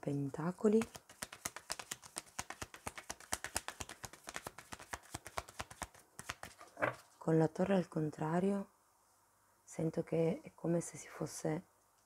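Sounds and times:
cards being shuffled: 0.7 - 7.1.

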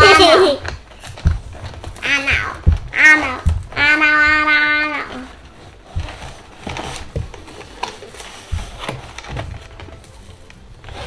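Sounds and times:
objects moved on a surface: 5.1 - 11.0
packaging rustling: 5.1 - 11.0.

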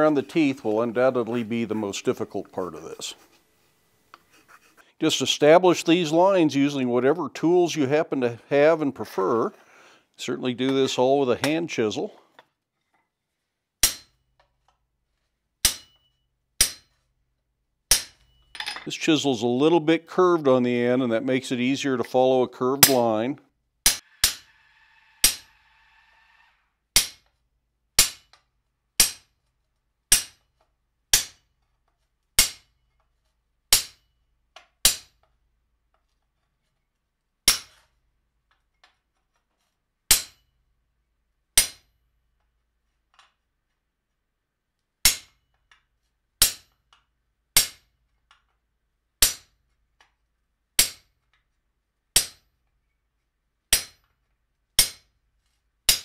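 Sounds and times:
hammer striking chisel on metal: 13.8 - 14.2, 15.6 - 16.9, 17.9 - 18.9, 23.9 - 24.5, 25.2 - 25.5, 29.0 - 29.3, 32.4 - 32.7, 40.1 - 40.4, 41.6 - 41.9, 53.7 - 54.0, 54.8 - 55.0.

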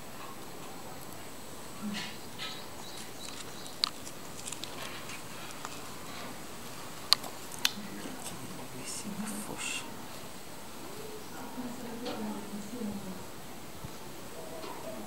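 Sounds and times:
handling rustles: 2.0 - 8.7
sharp clicks: 2.4 - 5.8.

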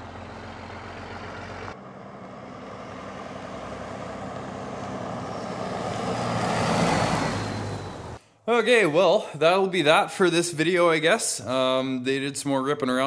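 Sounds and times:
diesel pickup truck passing: 0.0 - 8.2.

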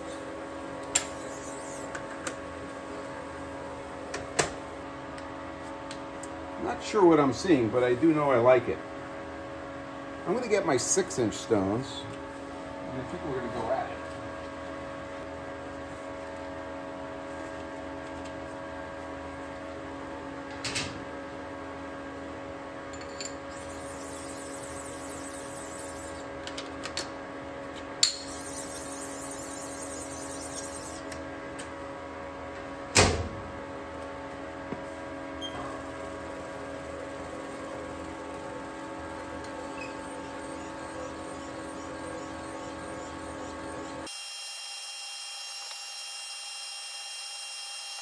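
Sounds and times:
metal lathe humming: 28.1 - 31.2, 35.7 - 44.1.

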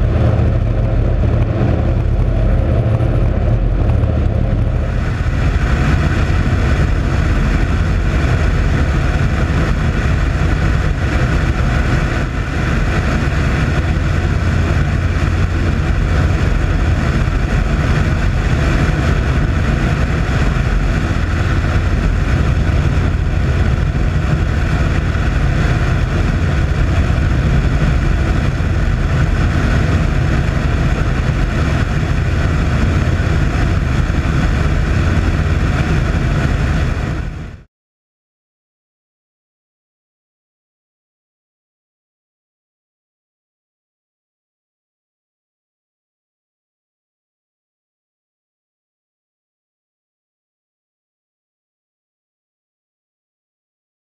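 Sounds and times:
propeller engines droning: 0.0 - 37.7
wind rushing: 0.0 - 37.7.

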